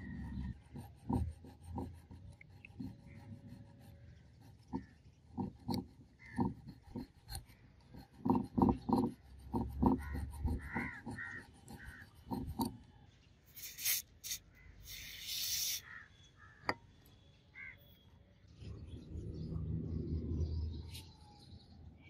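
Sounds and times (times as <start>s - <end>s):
file scraping a screw: 0.0s - 12.9s, 13.5s - 16.0s.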